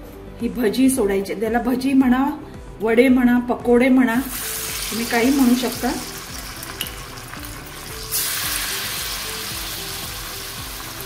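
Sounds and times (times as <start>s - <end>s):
batter sizzling in hot oil: 4.3s - 11.0s.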